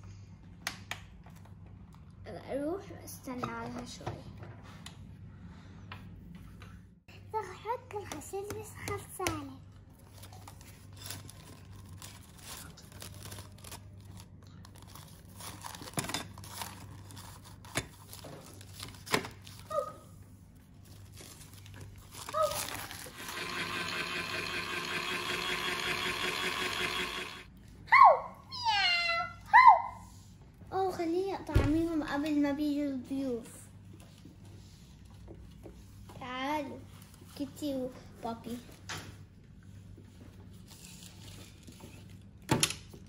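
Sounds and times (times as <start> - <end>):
steady buzzing: 23.1 - 27.5.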